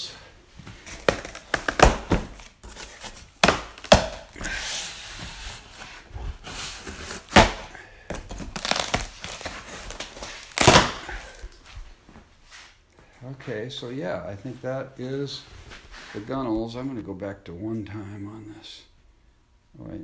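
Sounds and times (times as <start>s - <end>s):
cardboard and plastic rustling: 0.5s - 12.2s.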